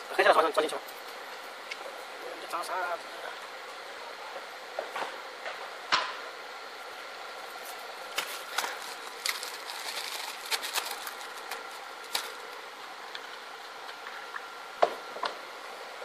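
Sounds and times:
plastic bag crinkling: 8.1s - 12.6s.

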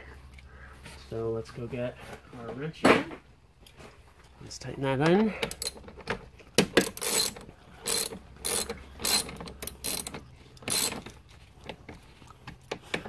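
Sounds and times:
socket ratchet clicking: 5.4s - 5.8s, 6.6s - 11.2s.

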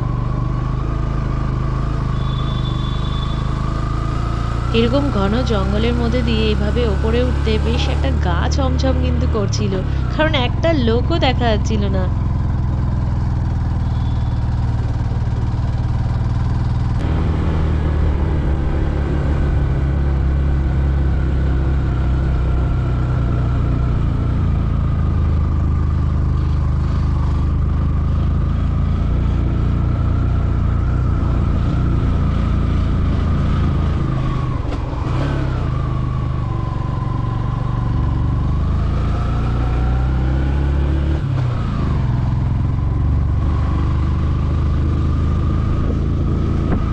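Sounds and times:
motorcycle engine under load: 9.8s - 38.8s.

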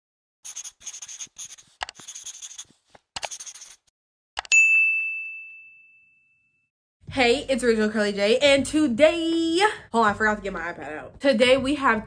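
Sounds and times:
pen scratching on paper: 0.4s - 3.9s
bright bell ding: 4.5s - 6.6s.

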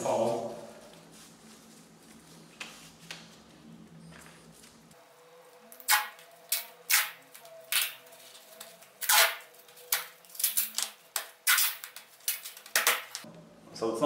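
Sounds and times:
adhesive tape ripping: 5.7s - 13.2s.

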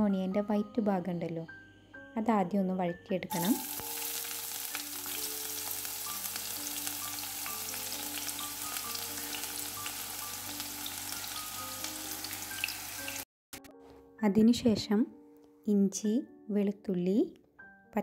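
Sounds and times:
onions sizzling in hot oil: 3.3s - 13.2s.

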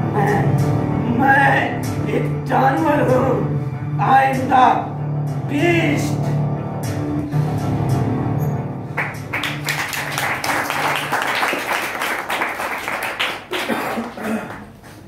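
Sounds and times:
audience applauding: 9.0s - 14.8s.

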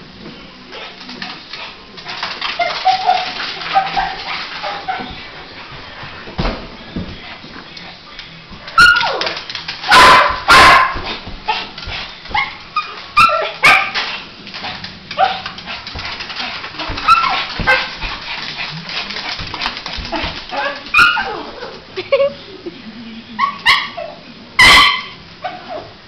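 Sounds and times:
small dog barking and yipping: 23.4s - 25.8s.

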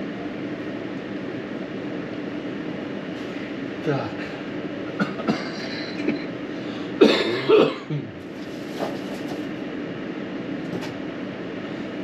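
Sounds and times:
steady background hum: 0.0s - 12.0s
person coughing: 5.0s - 6.3s, 7.0s - 8.2s.

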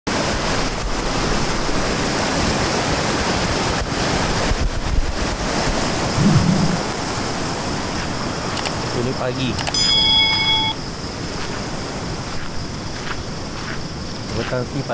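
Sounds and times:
river rushing over rapids: 0.1s - 8.9s.

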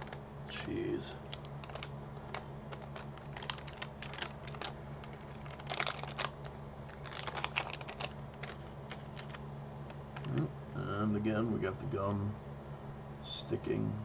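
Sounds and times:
wax paper wrapper crinkling: 0.0s - 0.2s, 1.2s - 10.4s.

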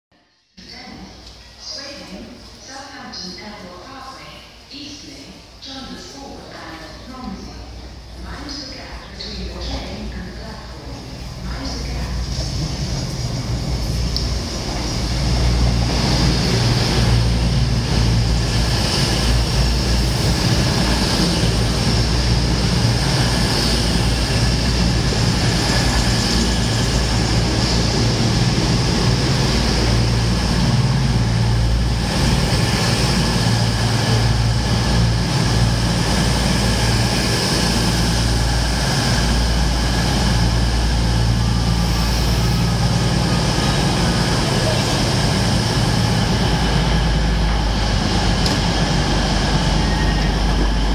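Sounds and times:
diesel train engines droning: 7.4s - 50.9s
wheels rumbling on rails: 11.0s - 50.9s.

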